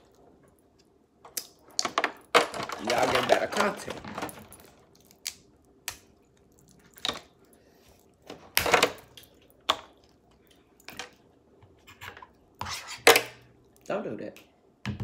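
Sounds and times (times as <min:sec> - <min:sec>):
crab shells cracking: 0:04.9 - 0:07.4.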